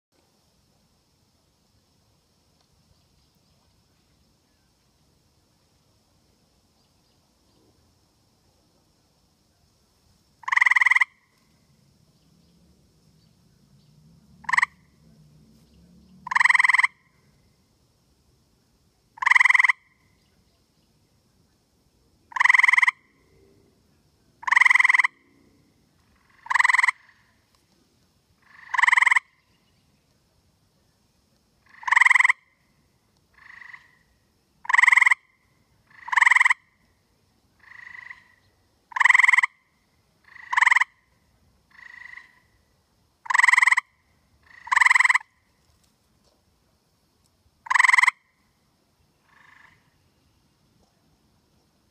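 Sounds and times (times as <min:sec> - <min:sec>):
tree frog rasping trills: 0:10.4 - 0:11.4, 0:14.4 - 0:15.1, 0:16.1 - 0:17.2, 0:19.2 - 0:20.0, 0:22.3 - 0:23.2, 0:24.4 - 0:27.4, 0:28.4 - 0:29.5, 0:31.6 - 0:32.6, 0:33.3 - 0:36.8, 0:37.6 - 0:41.1, 0:41.7 - 0:42.6, 0:43.2 - 0:45.4, 0:47.6 - 0:48.4, 0:49.2 - 0:50.1.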